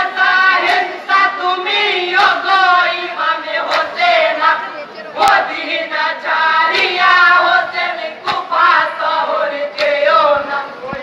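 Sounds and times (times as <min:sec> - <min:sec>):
sharp rhythmic strikes: 0:00.0 - 0:04.5, 0:06.6 - 0:10.5
group singing a lament in chorus: 0:00.0 - 0:11.0.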